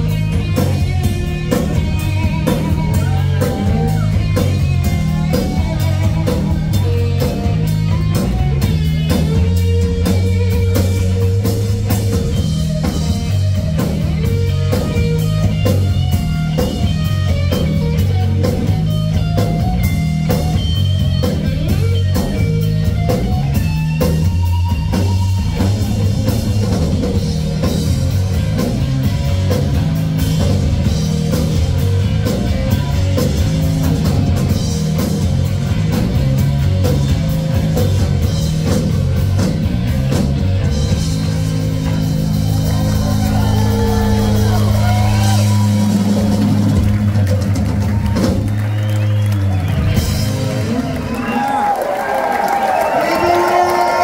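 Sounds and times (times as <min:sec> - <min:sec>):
drum kit: 0:00.0 - 0:54.0
electric guitars: 0:00.0 - 0:54.0.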